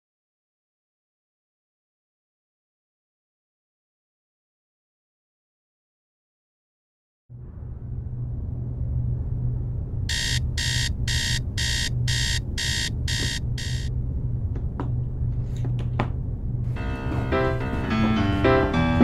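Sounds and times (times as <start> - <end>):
steady low hum: 7.4 - 18.4
smartphone alarm beeping: 10.1 - 13.9.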